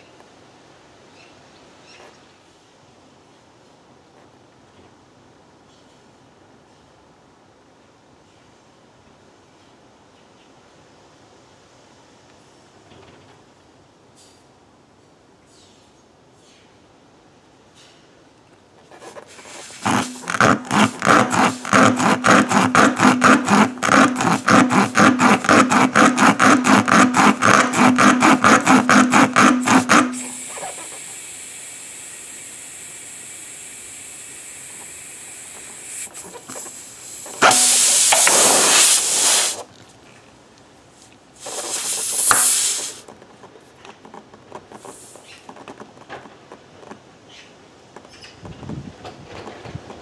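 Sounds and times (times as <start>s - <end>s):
steel rasp rubbing in tire: 18.9s - 39.7s, 41.4s - 43.0s
air hissing from tire: 19.3s - 24.5s, 28.2s - 39.7s, 41.4s - 43.0s
loud rush of air: 26.6s - 39.7s, 41.4s - 43.0s.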